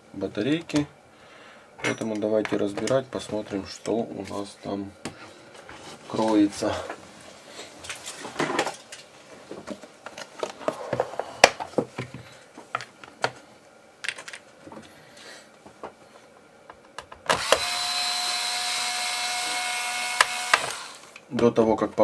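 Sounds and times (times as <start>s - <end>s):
electric screwdriver whine: 17.3s - 21.2s.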